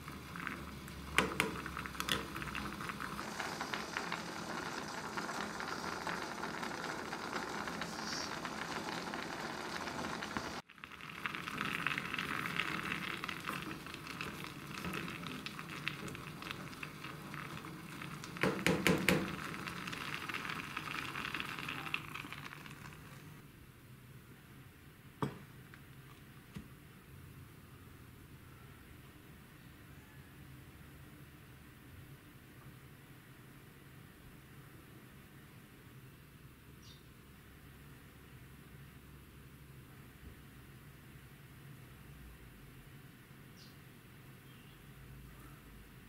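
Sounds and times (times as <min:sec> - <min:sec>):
water boiling in a pot: 0:00.0 - 0:23.5
wooden spoon knocking a pot: 0:18.4 - 0:19.4.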